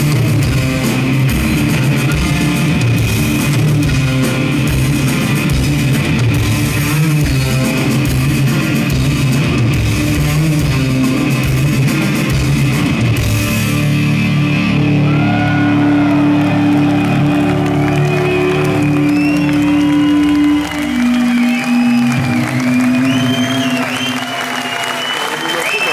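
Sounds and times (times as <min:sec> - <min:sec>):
live rock band playing: 0:00.0 - 0:24.9
crowd cheering: 0:14.6 - 0:25.9.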